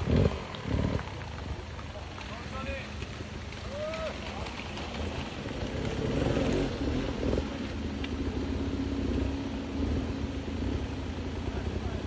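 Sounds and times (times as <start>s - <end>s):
dirt bike engine revving: 0.0s - 1.2s, 5.5s - 7.8s.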